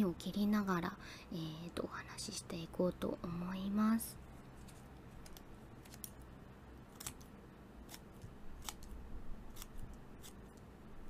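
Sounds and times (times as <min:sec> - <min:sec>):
scissors snipping paper: 0:06.9 - 0:10.6.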